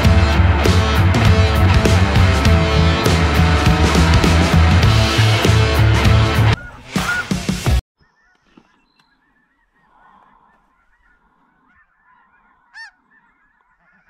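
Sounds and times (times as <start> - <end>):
loud music: 0.0 - 7.8
snow geese calling: 6.1 - 14.0.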